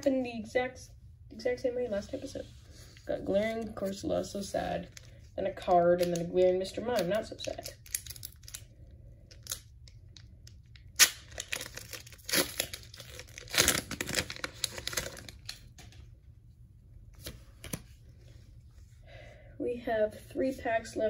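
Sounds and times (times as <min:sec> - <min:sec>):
foil wrapper tearing and crinkling: 0:07.5 - 0:08.7, 0:10.8 - 0:15.8.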